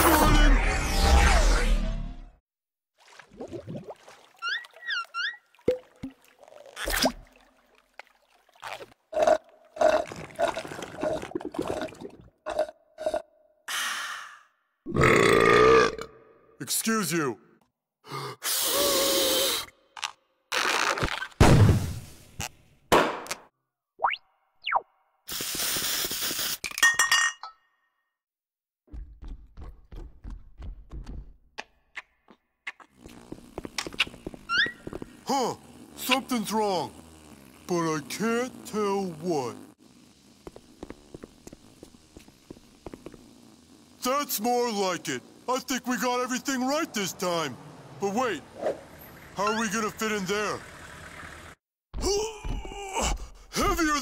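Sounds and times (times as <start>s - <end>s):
cartoon water splash: 3.0s - 7.4s
short gurgling gulps: 3.1s - 4.6s, 8.5s - 13.2s.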